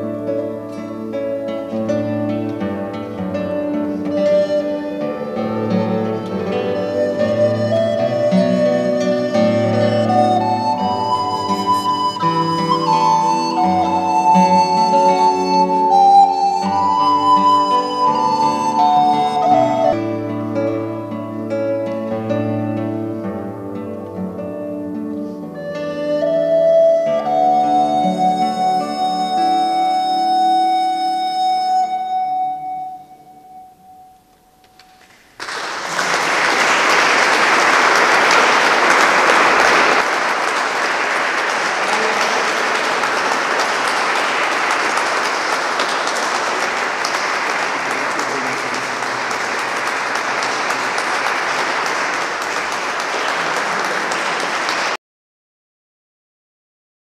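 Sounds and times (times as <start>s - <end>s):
audience applause: 4.0s - 20.0s, 35.0s - 55.0s
recorder and guitar note ringing: 31.5s - 35.0s.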